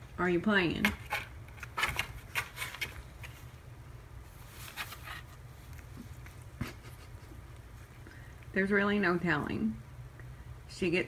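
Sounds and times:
low steady hum: 0.0s - 11.0s
cat claws scratching cardboard: 0.8s - 3.4s.

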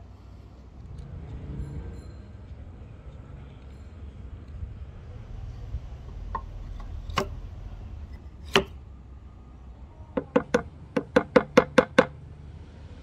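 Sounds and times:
hammer tapping metal: 10.2s - 12.2s.

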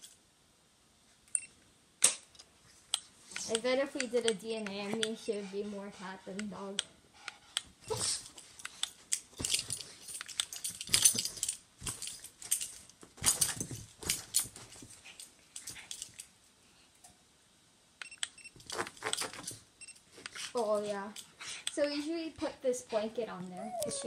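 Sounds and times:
metallic jingle: 9.1s - 16.3s.

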